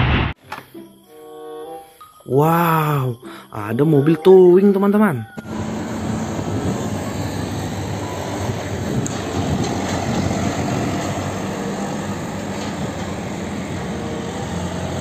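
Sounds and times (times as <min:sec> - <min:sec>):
road and traffic noise: 0:03.4 - 0:15.0
diesel truck engine driving past: 0:05.4 - 0:15.0.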